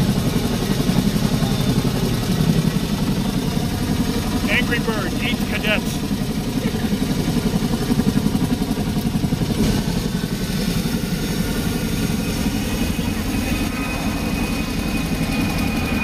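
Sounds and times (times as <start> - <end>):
helicopter rotor and turbine noise: 0.0 - 16.0.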